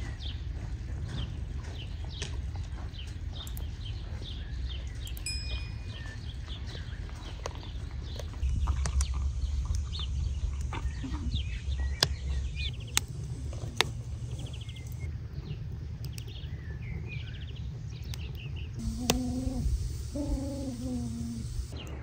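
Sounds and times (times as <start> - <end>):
small birds chirping: 0.0 - 22.0
sharp clicks: 18.1 - 21.8
wavering animal call: 18.8 - 21.8.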